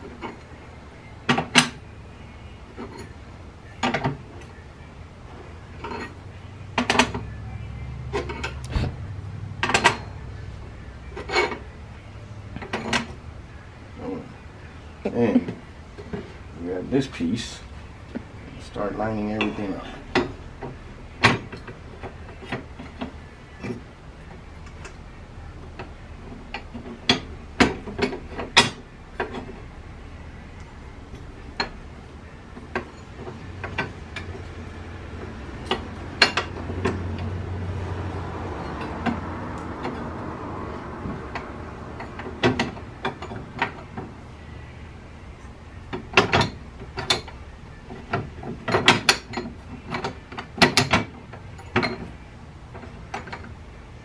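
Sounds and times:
low hum: 0:00.0 - 0:50.4
metal clinks and knocks: 0:05.7 - 0:11.7, 0:31.1 - 0:31.9, 0:32.6 - 0:44.2, 0:45.9 - 0:53.6.

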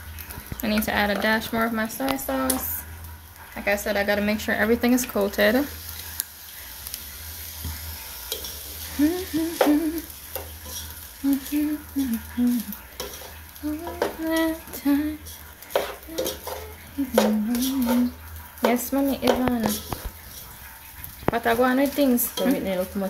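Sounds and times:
rice sizzling: 0:00.0 - 0:23.0
person's voice: 0:00.6 - 0:02.8, 0:09.0 - 0:10.0, 0:11.2 - 0:12.8, 0:13.6 - 0:15.2, 0:16.0 - 0:19.8, 0:21.3 - 0:23.0
spatula scraping a pot: 0:10.3 - 0:11.1, 0:13.0 - 0:23.0.

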